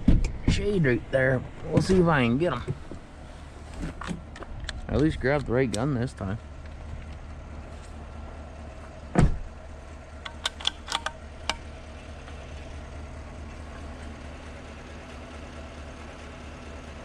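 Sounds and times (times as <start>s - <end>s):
truck engine idling: 0.0s - 17.0s
sharp clicks: 10.2s - 11.7s.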